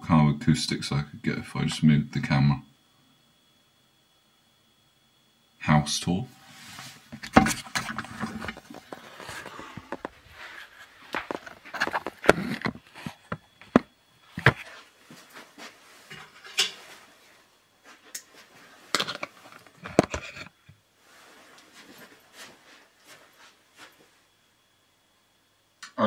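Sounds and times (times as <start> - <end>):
camera handling knocks and rustling: 7.2 - 10.2, 11.1 - 14.7, 19.0 - 20.6.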